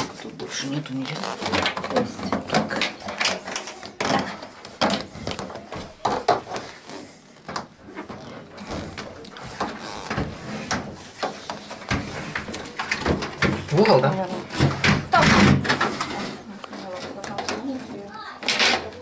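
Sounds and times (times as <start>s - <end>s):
plastic hoses knocking and clicking: 1.0s - 6.7s, 7.4s - 16.1s.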